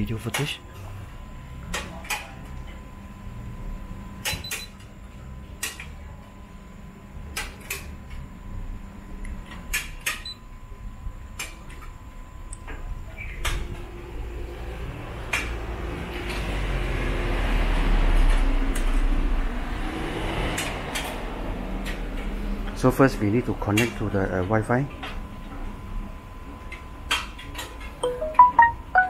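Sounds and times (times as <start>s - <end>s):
vehicle rumble and hiss: 13.8s - 23.7s.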